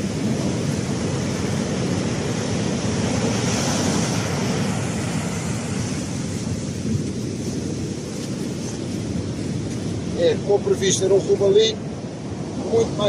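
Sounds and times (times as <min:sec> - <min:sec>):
waves washing up beach: 0:00.0 - 0:13.0
wind on microphone: 0:00.0 - 0:13.0.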